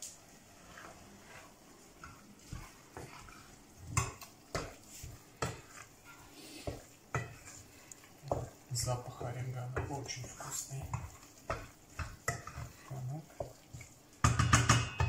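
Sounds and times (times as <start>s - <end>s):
meat frying in pot: 0.0s - 15.0s
spatula scraping metal pot: 0.5s - 15.0s.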